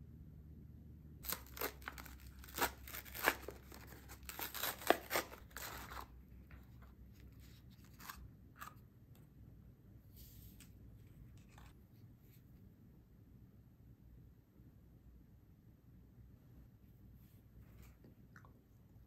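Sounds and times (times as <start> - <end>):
plastic wrapper tearing and crinkling: 1.2 - 6.1.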